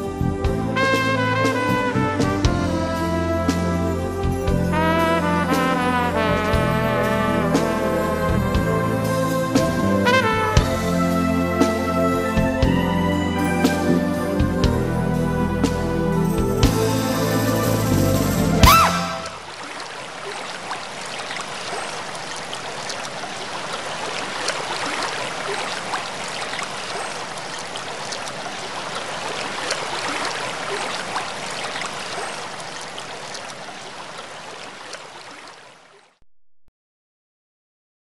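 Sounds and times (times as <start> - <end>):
rushing stream water: 0.0 - 36.2.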